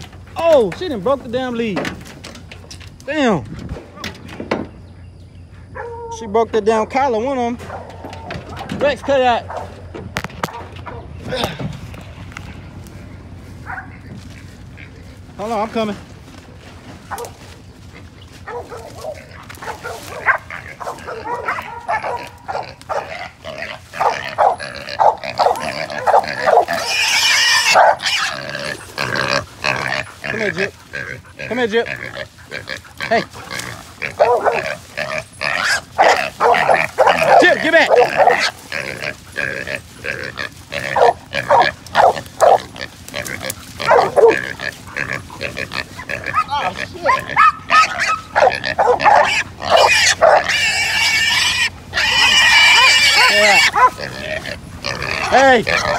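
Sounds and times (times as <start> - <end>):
dogs barking: 5.6 - 6.3, 7.6 - 11.2, 13.2 - 15.4, 16.6 - 55.9
wild hog squealing: 17.0 - 55.9.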